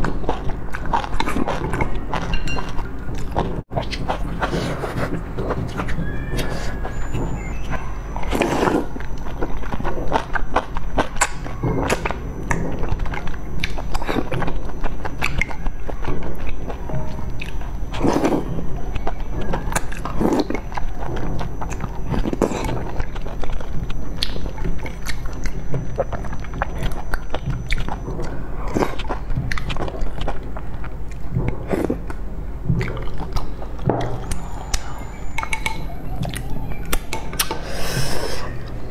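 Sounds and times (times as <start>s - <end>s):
steady low hum: 0.0s - 38.9s
slurping food: 3.3s - 6.8s, 37.4s - 38.6s
chewing and mouth smacks: 8.3s - 37.6s.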